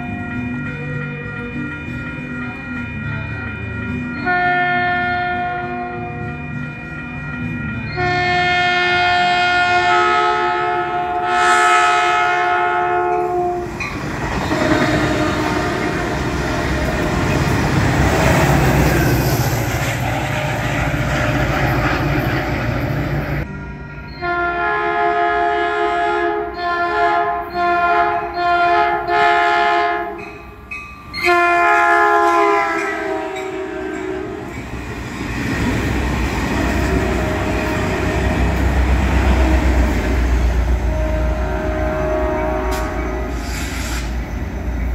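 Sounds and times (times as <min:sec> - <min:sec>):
train rumbling: 0:00.0 - 0:44.9
locomotive air horn blasts: 0:04.2 - 0:06.3, 0:08.0 - 0:13.8, 0:14.4 - 0:16.4, 0:24.2 - 0:30.2, 0:31.2 - 0:34.5, 0:40.6 - 0:44.1.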